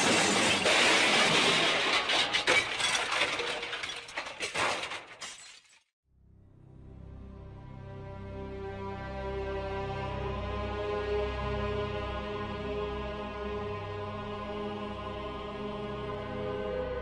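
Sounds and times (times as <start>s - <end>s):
glass shattering: 0.0s - 5.9s
soft slow music: 6.2s - 17.0s.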